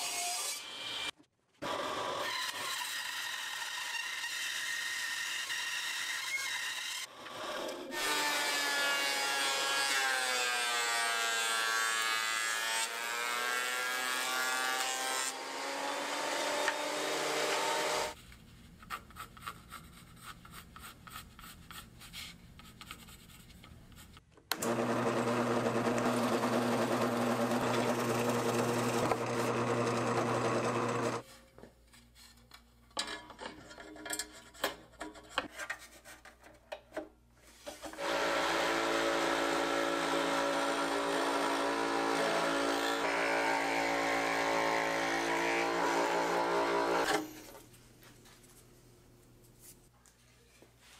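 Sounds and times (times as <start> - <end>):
drill press humming: 24.5 - 31.2
scroll saw running: 24.5 - 31.2, 38.0 - 47.4
thickness planer cutting board: 24.5 - 31.2.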